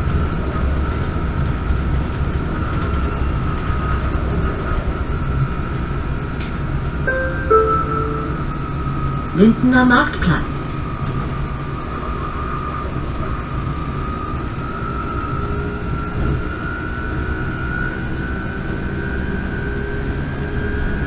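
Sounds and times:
low drivetrain and road rumble: 0:00.0 - 0:07.0.

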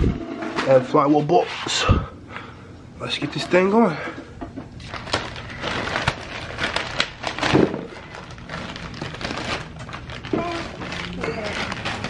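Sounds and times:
plastic wrapping crinkling: 0:04.7 - 0:12.0.

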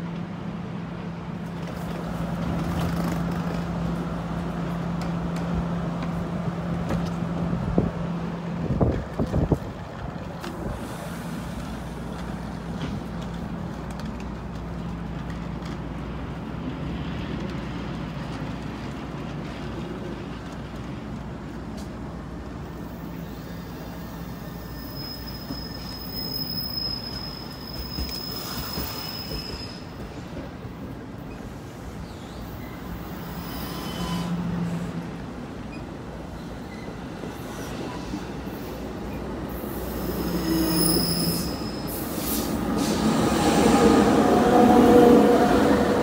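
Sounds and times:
train wheels rumbling on rails: 0:00.0 - 0:46.0
high wheel squeal: 0:23.2 - 0:30.0, 0:32.1 - 0:34.4, 0:39.9 - 0:43.2.

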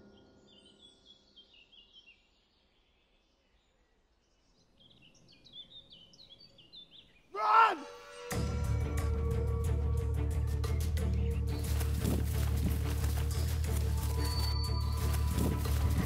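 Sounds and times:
songbirds chirping: 0:00.0 - 0:07.8, 0:09.3 - 0:16.0
person shouting: 0:07.4 - 0:07.9.

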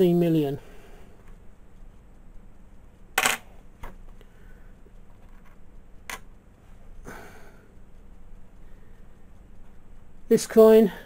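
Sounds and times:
coins clinking: 0:03.2 - 0:03.5.

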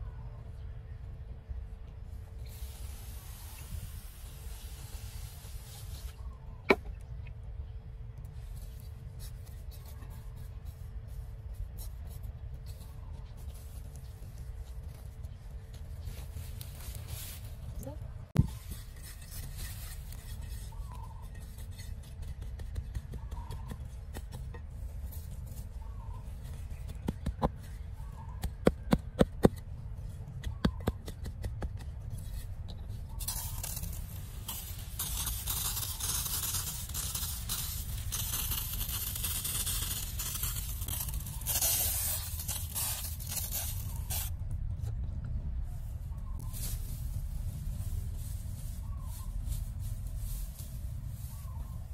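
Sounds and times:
gritty rustle of soil: 0:01.8 - 0:06.6, 0:08.1 - 0:51.9
trowel clicking and scraping: 0:33.2 - 0:44.3.

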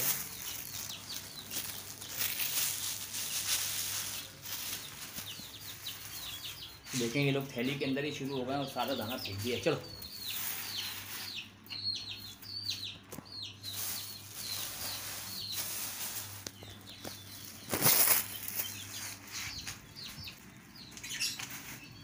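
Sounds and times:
wings flapping and rustling: 0:00.0 - 0:07.2, 0:13.1 - 0:20.2
budgies chirping: 0:00.0 - 0:22.0.

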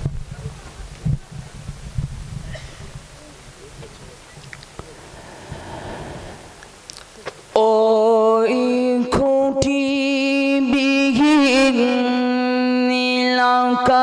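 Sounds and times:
person singing long wordless notes: 0:07.5 - 0:14.0.

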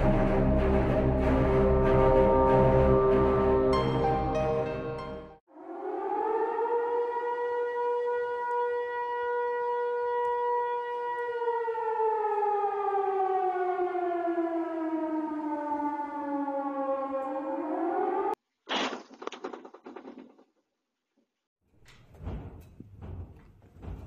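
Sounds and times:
siren wailing: 0:05.5 - 0:18.4.

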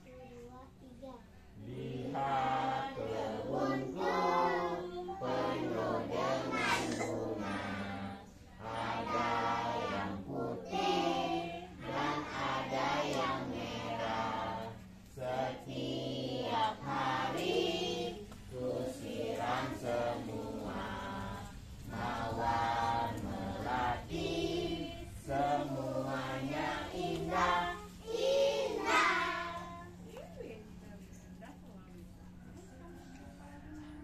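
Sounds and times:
young children singing: 0:01.7 - 0:30.0.

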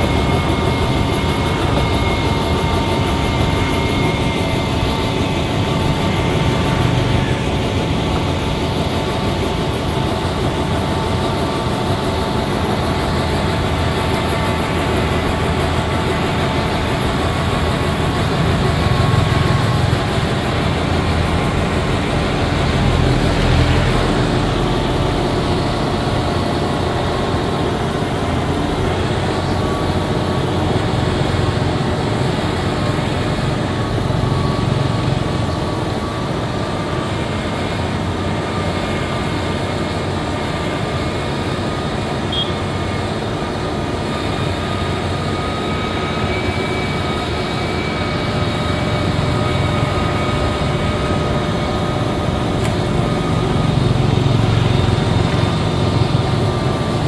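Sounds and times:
diesel engine droning: 0:44.9 - 0:57.0.

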